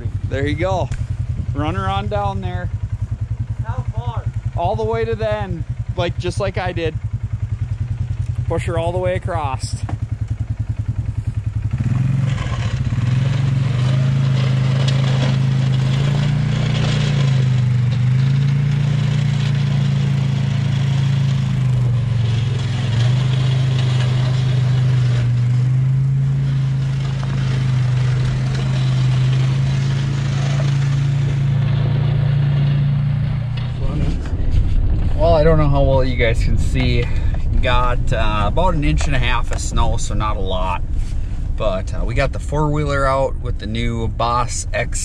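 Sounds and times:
atv engine running: 0.0 - 45.0
plow scraping snow: 9.3 - 45.0.

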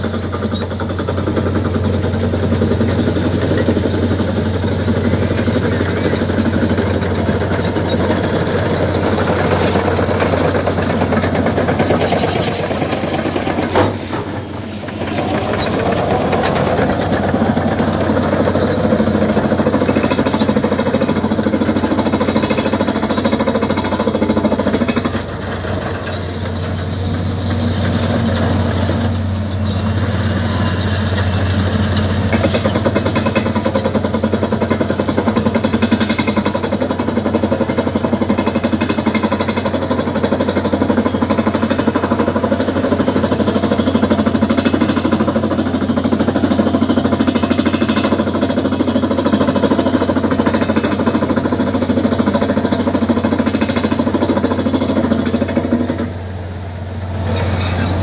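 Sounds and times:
pneumatic hammer drilling rock: 0.0 - 58.0
engine humming: 53.3 - 58.0.

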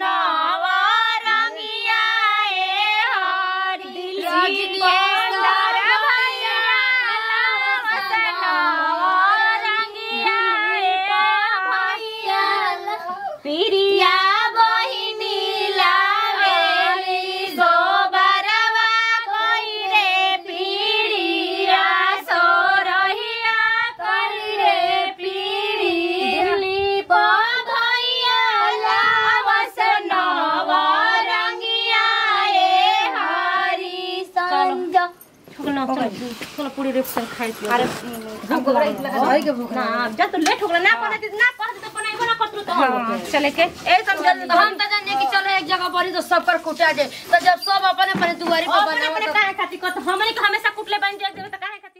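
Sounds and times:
women singing folk song: 0.0 - 36.7.

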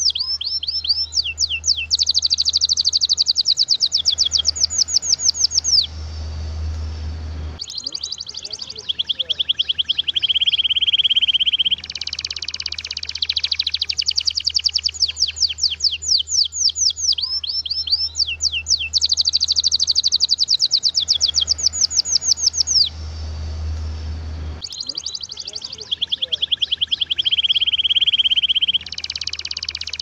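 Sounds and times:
canary singing trills: 0.0 - 6.8, 7.6 - 30.0
low steady hum: 1.2 - 12.4, 20.7 - 30.0.

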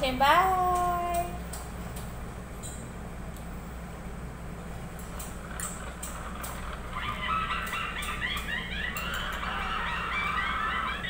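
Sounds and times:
steady low hum: 0.0 - 11.0
flock of birds chirping: 5.4 - 11.0.

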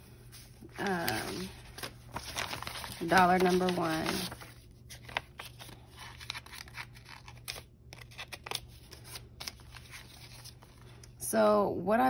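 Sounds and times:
paper bill crinkling: 0.3 - 11.1.

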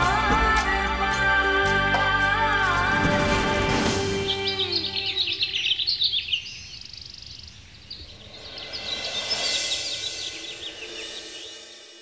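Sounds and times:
small birds chirping: 3.8 - 12.0
bird trill: 4.0 - 12.0
rising wash of sound: 8.0 - 12.0.

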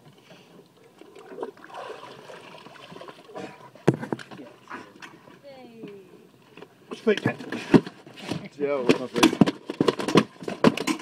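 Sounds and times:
water splashing and sloshing: 0.0 - 5.6.

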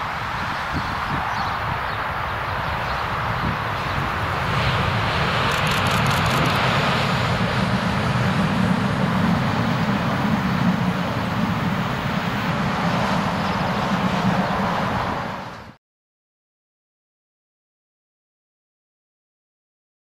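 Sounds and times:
train wheels rumbling on rail: 0.0 - 15.8.

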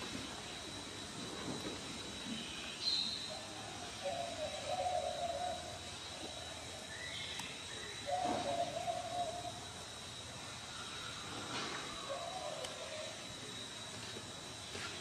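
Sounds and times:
hoot-like animal calls: 3.3 - 5.8, 6.8 - 9.6, 11.7 - 13.3.

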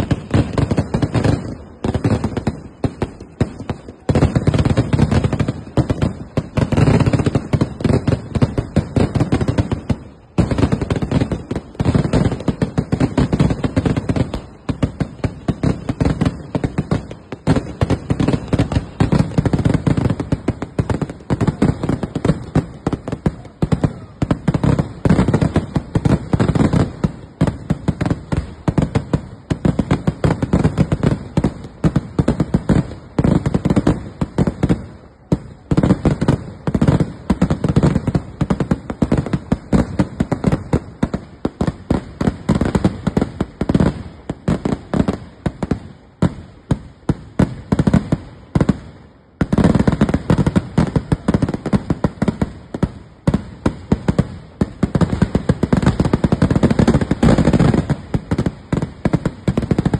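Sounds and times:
fireworks banging: 0.0 - 59.9.

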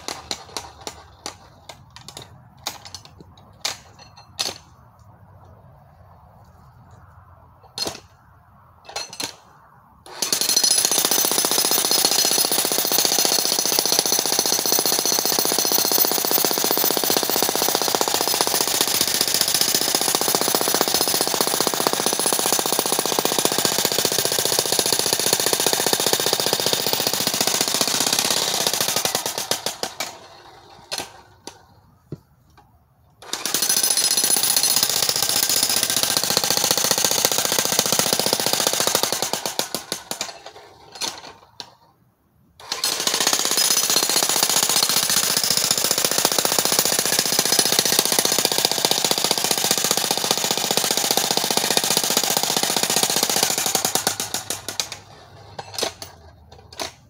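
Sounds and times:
demolition hammer chiselling rock: 10.1 - 31.2, 33.2 - 41.2, 42.6 - 55.0.

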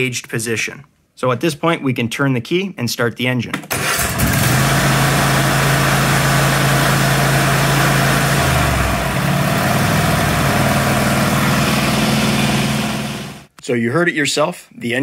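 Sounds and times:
riding mower engine running: 3.7 - 13.5.

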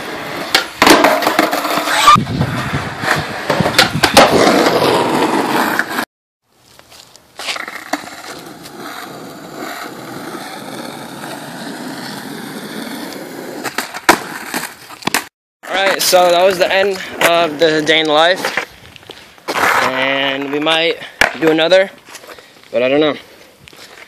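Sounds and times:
skateboard wheels rolling on concrete: 0.0 - 24.0
skateboard clacks: 0.5 - 1.8.

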